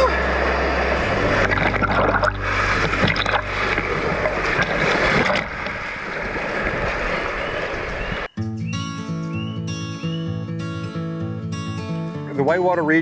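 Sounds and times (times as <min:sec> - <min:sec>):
acoustic guitar music: 0:00.0 - 0:05.3, 0:08.4 - 0:13.0
whitewater churning and splashing: 0:00.0 - 0:08.3.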